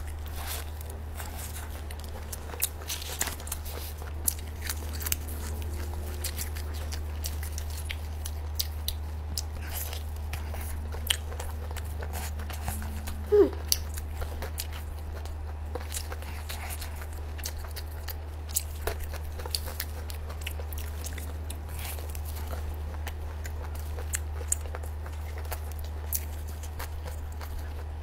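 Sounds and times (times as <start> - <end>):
sliding pitch sound: 12.4 - 13.7.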